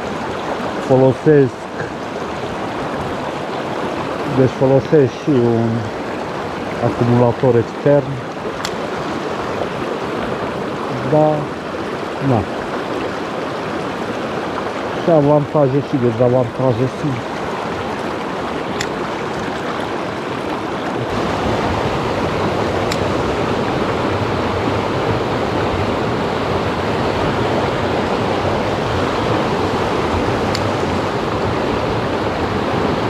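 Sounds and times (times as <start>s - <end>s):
river rushing over rocks: 0.0s - 33.0s.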